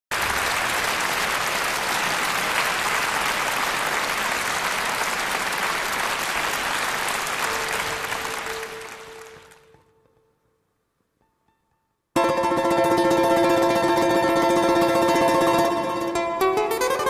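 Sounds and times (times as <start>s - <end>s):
audience applauding: 0.1s - 9.9s.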